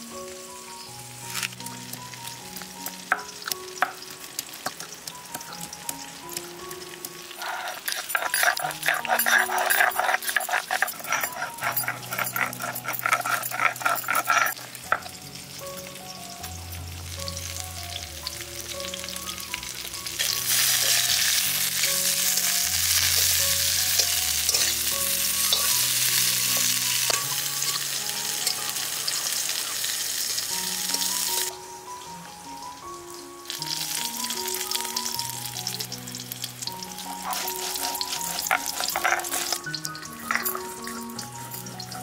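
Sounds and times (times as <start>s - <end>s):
vegetables sizzling in hot oil: 0.0s - 42.0s
stone roller grinding on stone slab: 7.4s - 15.1s, 20.5s - 27.3s, 37.2s - 41.1s.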